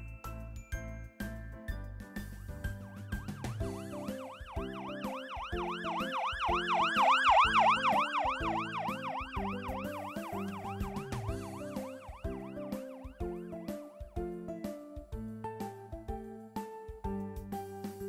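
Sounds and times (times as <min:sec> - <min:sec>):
children's music: 0:00.0 - 0:18.0
siren yelping: 0:02.8 - 0:13.6.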